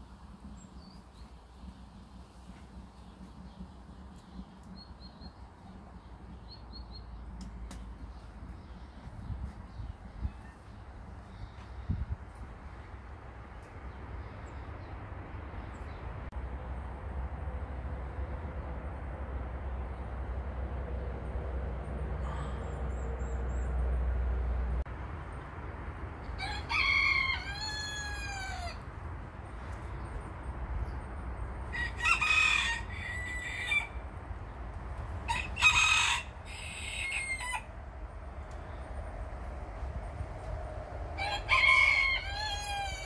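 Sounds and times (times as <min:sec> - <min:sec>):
rooster crowing: 0:26.4 - 0:28.8, 0:31.7 - 0:34.0, 0:35.2 - 0:37.8, 0:41.2 - 0:43.0.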